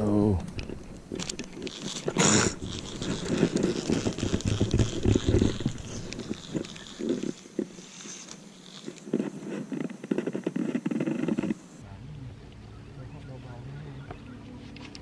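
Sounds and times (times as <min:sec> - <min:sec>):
fishing reel handling noise: 0:00.5 - 0:11.6.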